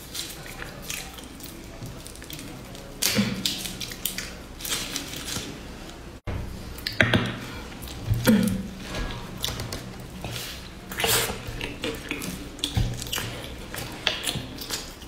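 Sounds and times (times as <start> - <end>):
dry leaf wrapper crackling: 0.0 - 6.1
sticky squish: 6.7 - 15.0.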